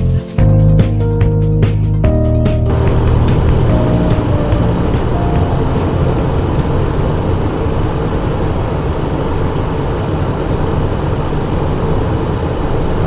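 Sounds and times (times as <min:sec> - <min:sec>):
jet cabin airflow and engine noise: 0:03.0 - 0:13.0.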